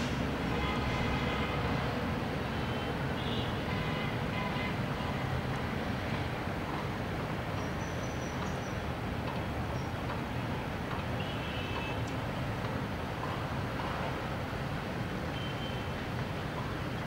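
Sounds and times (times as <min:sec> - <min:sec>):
low rumbling background noise: 0:00.0 - 0:03.2.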